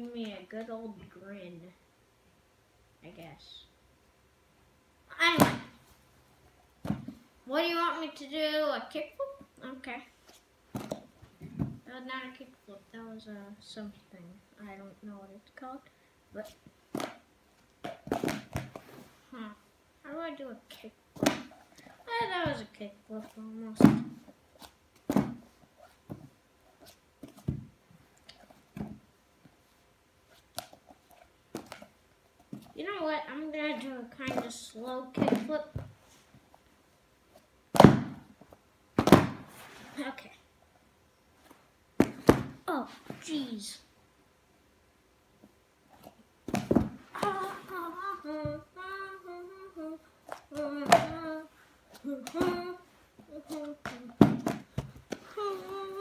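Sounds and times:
notebook thumping on carpet: 39.0 - 39.4
child singing without words: 47.1 - 54.2, 55.3 - 56.0.

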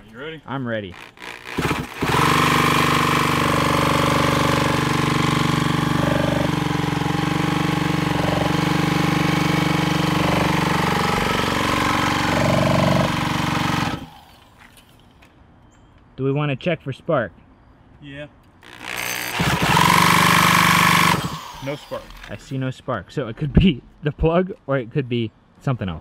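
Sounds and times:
cordless drill turning engine over: 1.0 - 14.6, 18.6 - 22.4.

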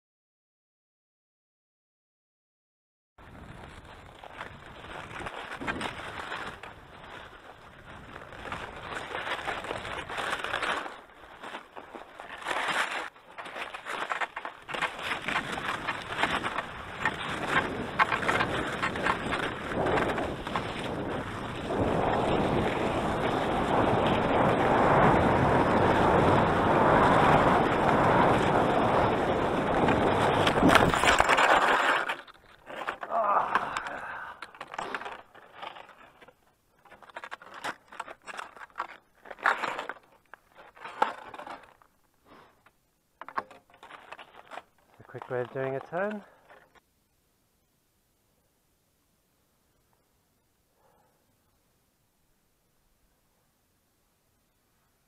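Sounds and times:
skis sliding over snow: 3.2 - 46.8.

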